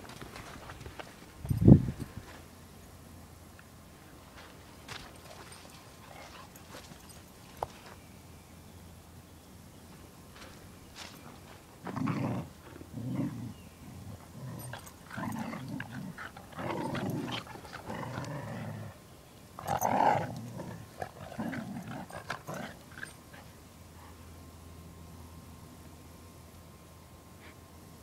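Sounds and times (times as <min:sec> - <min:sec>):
dogs growling: 0:11.8 - 0:19.0, 0:19.6 - 0:23.5.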